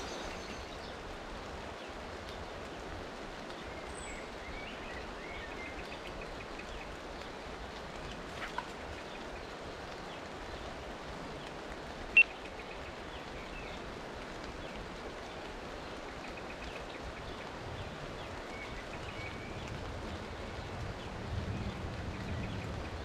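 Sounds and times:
rain falling on river: 0.0s - 23.0s.

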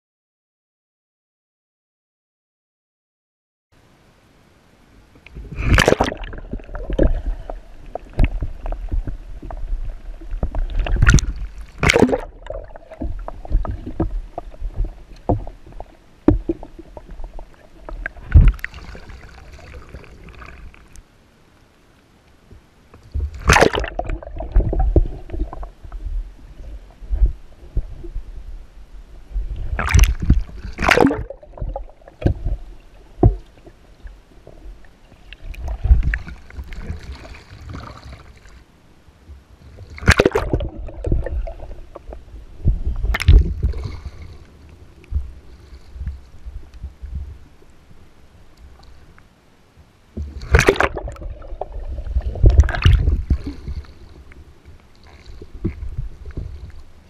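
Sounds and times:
water sloshing and gurgling: 5.2s - 21.2s, 22.5s - 49.3s, 50.1s - 57.0s
loud water splashes: 5.5s - 7.1s, 11.0s - 12.7s, 23.4s - 24.5s, 29.8s - 31.4s, 40.0s - 40.6s, 50.4s - 51.2s.

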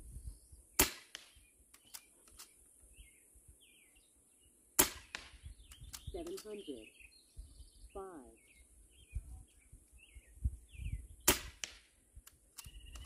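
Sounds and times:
birds chirping faintly: 0.0s - 13.0s
air rifle shots: 0.8s - 2.4s, 4.8s - 6.6s, 11.2s - 13.0s.

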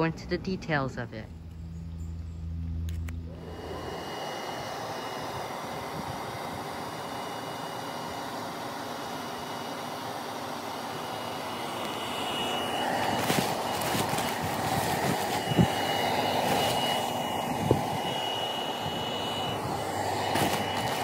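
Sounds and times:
electric blower fan running: 0.0s - 21.0s
faint high whine: 11.0s - 21.0s.

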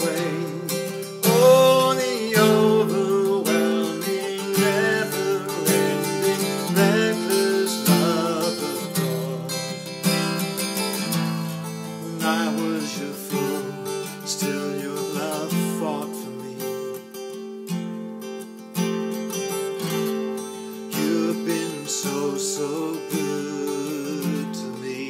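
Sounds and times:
man singing: 0.0s - 17.1s, 20.8s - 25.0s
strummed acoustic guitar: 0.0s - 25.0s.

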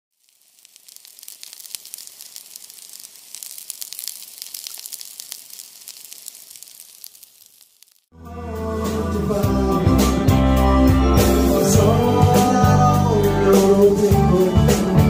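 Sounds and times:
steak sizzling on grill pan: 0.1s - 8.1s.

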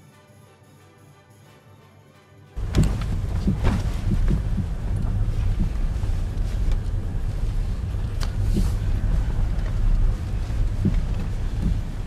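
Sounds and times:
engine and tyres rumbling: 2.6s - 12.0s.

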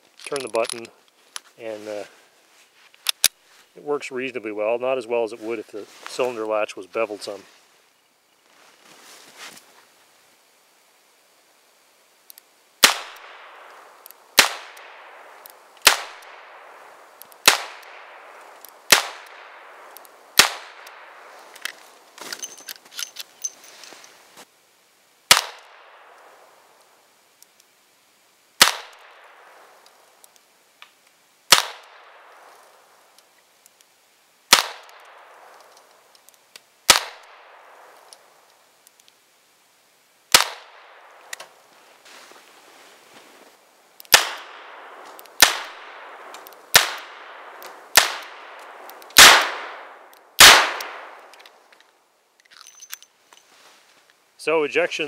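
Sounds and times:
revolver gunshots with echo: 49.2s - 51.2s.

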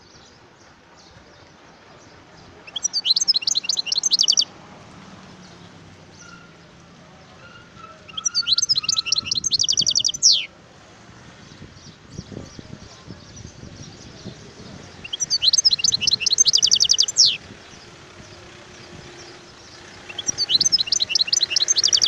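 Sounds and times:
bird twittering: 2.7s - 4.5s, 7.6s - 10.5s, 15.0s - 17.4s, 20.1s - 22.0s.

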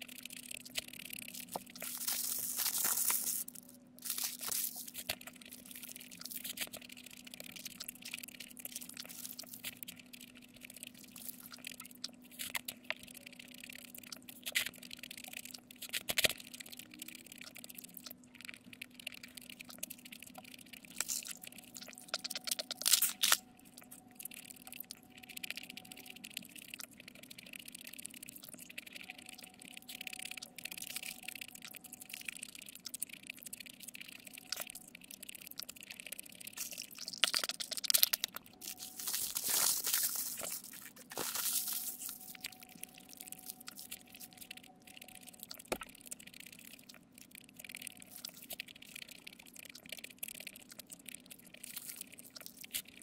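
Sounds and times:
crunching and wet chewing: 0.0s - 53.0s
faint steady hum: 0.0s - 53.0s
paper wrapper rustling: 1.4s - 5.2s, 36.6s - 42.6s.

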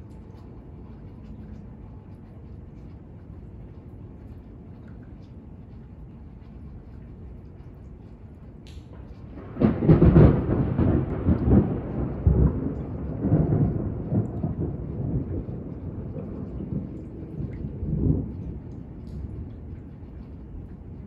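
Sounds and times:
thunderclap: 9.0s - 19.4s.

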